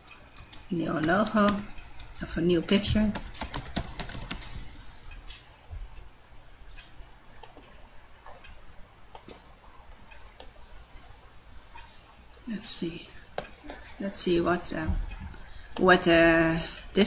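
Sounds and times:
keyboard typing: 0.0 - 5.2.

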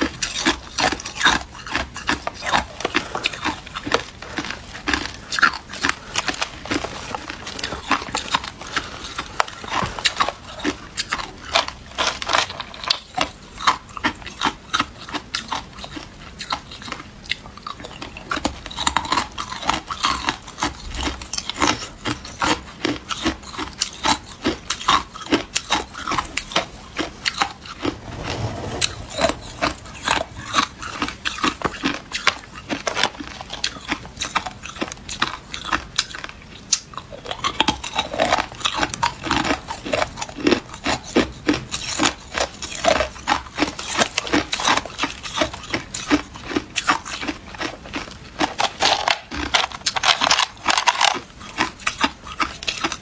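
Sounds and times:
ice cubes crunched between teeth: 46.8 - 53.0.

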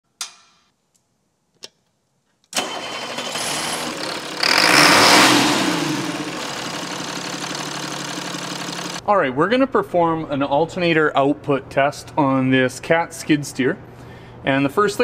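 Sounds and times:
engine starting and idling: 2.6 - 9.0.

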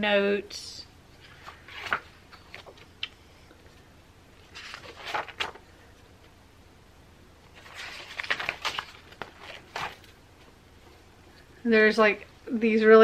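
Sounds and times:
paper pages rustling: 1.2 - 3.7, 4.4 - 5.9, 7.4 - 11.0.

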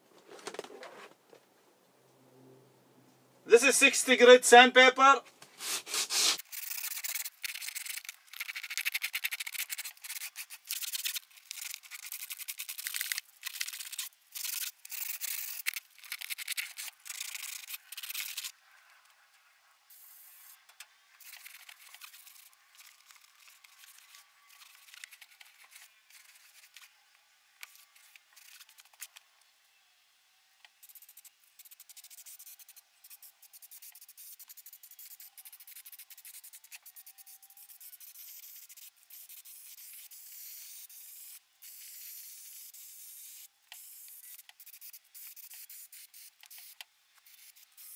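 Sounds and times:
aerosol spray can hissing: 5.6 - 15.8, 16.4 - 18.5, 30.8 - 47.9
hand sanding with sandpaper: 5.6 - 18.5, 30.8 - 40.7.

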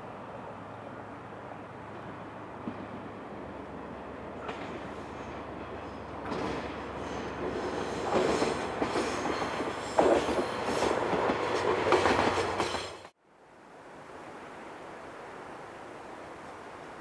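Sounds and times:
faint outdoor hiss: 0.0 - 7.0, 13.1 - 17.0
wheels clattering over rail joints: 4.4 - 13.1
high wheel squeal: 6.9 - 11.0.

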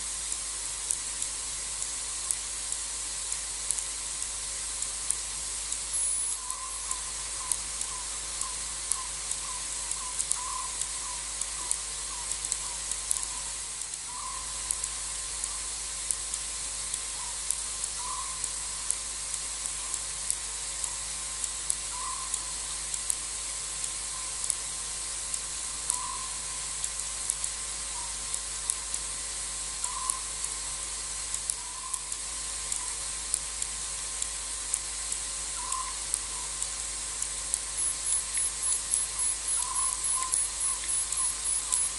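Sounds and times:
faint clicks: 0.2 - 24.7, 31.3 - 41.9
high-pitched insect drone: 5.9 - 7.5, 37.8 - 41.9.

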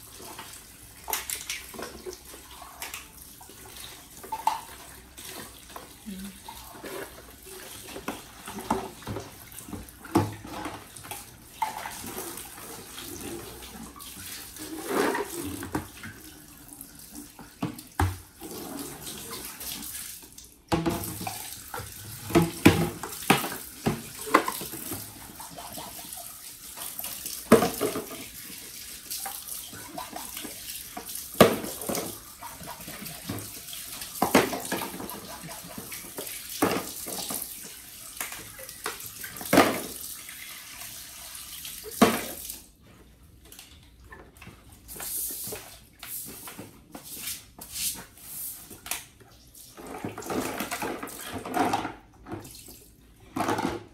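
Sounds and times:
tap water running: 0.0 - 42.9.

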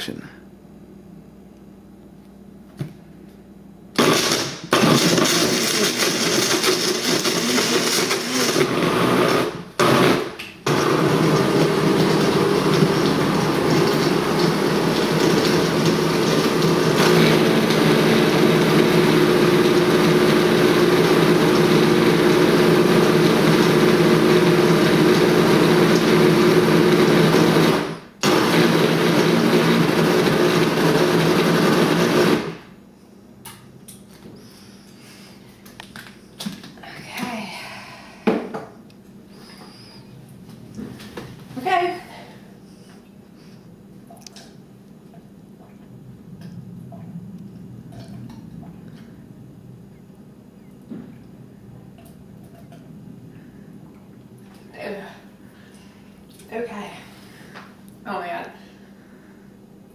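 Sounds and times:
blender running: 4.0 - 32.8.

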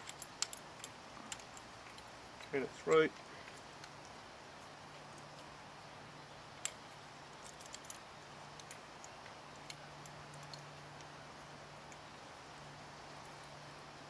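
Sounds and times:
small metallic clicks of wire: 0.0 - 4.2
low steady hum: 0.0 - 14.0.

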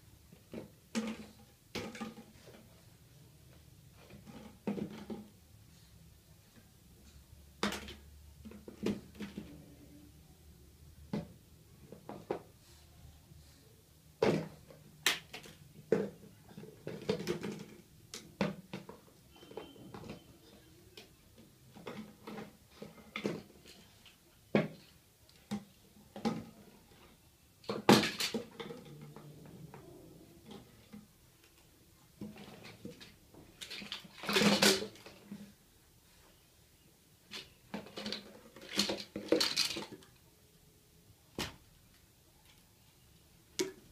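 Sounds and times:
plastic toys knocking and clattering: 0.3 - 5.5, 7.5 - 9.9, 10.8 - 12.6, 14.2 - 35.6, 37.2 - 40.2.

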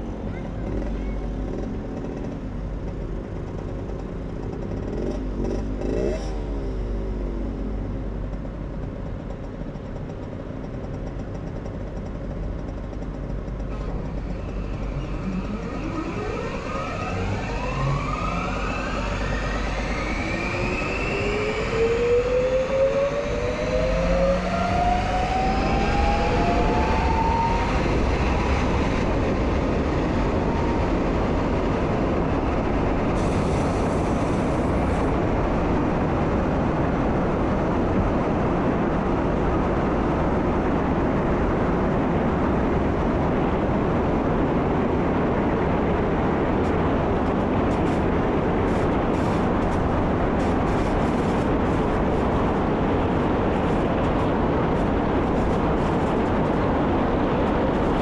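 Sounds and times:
train wheels on rail: 0.0 - 58.0
train motor whine rising: 12.6 - 36.5.

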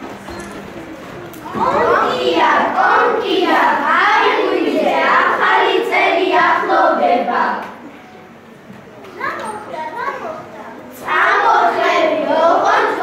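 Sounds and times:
children singing together: 1.4 - 7.9, 11.0 - 13.0.

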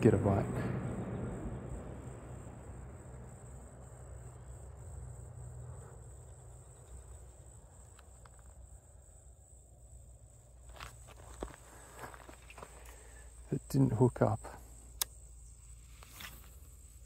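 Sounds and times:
insects chirring: 0.0 - 17.0
low steady rumble: 0.0 - 17.0.

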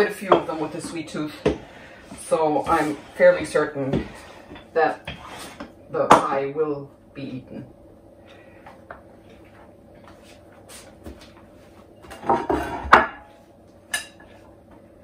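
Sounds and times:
scraping on worktop: 0.0 - 5.7, 12.1 - 13.2.

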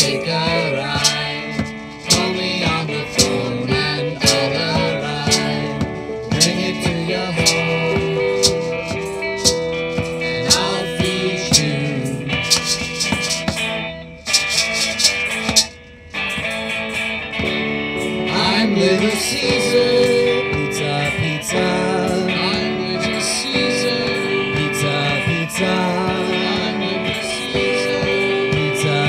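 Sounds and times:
band playing a song: 0.0 - 15.7, 16.3 - 29.0
sharp percussive hits: 0.0 - 18.3.

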